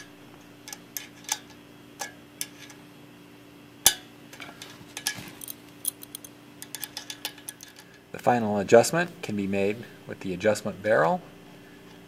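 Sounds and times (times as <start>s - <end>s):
small metallic clicks and taps: 3.9s - 8.0s.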